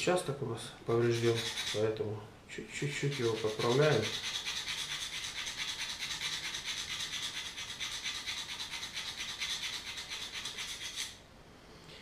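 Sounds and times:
knife scraping on honing bar: 0:01.0 - 0:01.9, 0:02.9 - 0:11.2.

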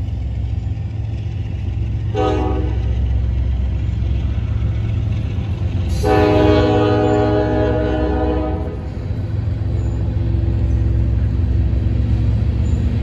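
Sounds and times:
freight train wheels rumbling: 0:00.0 - 0:13.0
locomotive horn blast: 0:02.1 - 0:02.9, 0:05.9 - 0:08.9.

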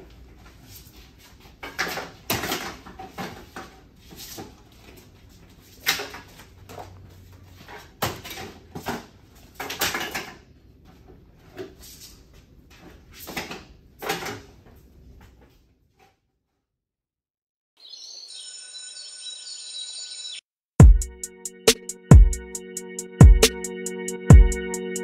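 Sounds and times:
folders rustling: 0:00.1 - 0:15.6.

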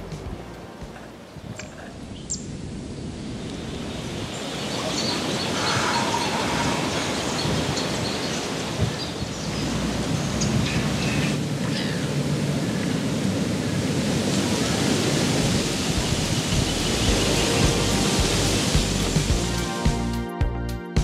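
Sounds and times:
wind rushing over microphone: 0:00.2 - 0:19.6.

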